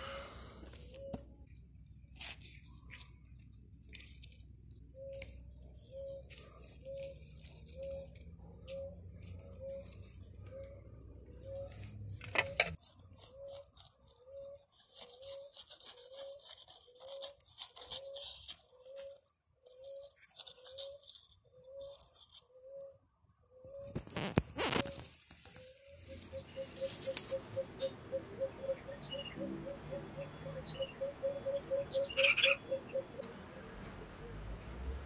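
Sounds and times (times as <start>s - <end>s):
moss rustling and crackling: 1.8s - 10.2s, 12.8s - 22.5s, 23.8s - 27.6s.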